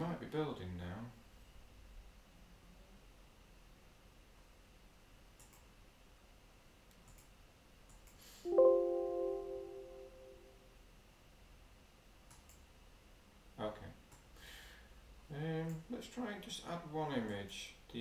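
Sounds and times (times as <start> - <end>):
faint mouse clicks: 5.4 - 5.7, 6.9 - 8.2, 12.3 - 12.7, 14.1 - 14.3
computer notification chime: 8.5 - 10.5.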